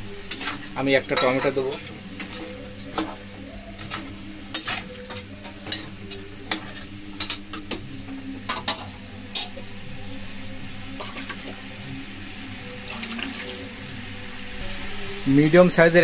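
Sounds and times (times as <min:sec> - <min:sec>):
frying sizzle: 0:00.0 - 0:16.0
metal spatula scraping a pan: 0:00.2 - 0:03.2, 0:03.8 - 0:07.8, 0:08.5 - 0:09.6.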